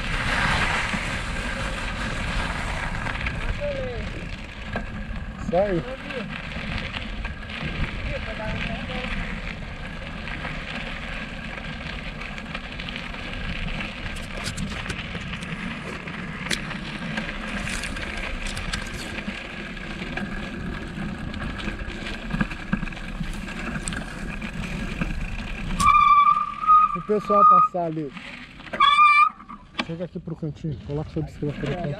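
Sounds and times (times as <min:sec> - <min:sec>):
bicycle riding rumble: 0:00.0 - 0:31.9
small clicks and rattles: 0:03.2 - 0:25.9.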